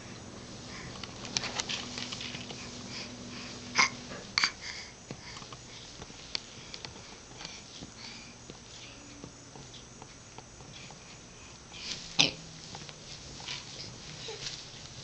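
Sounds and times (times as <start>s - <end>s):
faint steady hum: 0.0s - 15.0s
baby sniffing and breathing: 0.4s - 1.5s, 2.3s - 8.4s
soft clicks and rustles: 0.5s - 2.9s, 5.1s - 15.0s.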